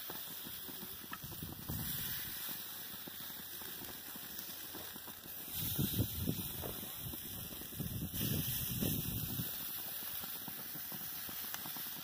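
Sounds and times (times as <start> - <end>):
meat sizzling on a grill: 0.0 - 12.0
wind rumbling on microphone: 1.2 - 2.3, 5.5 - 9.6.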